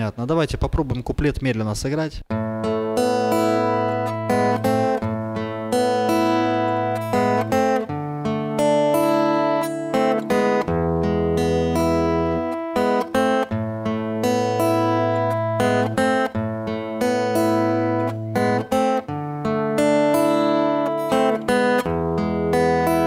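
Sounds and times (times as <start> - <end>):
acoustic guitar fingerpicked slowly: 2.3 - 23.0.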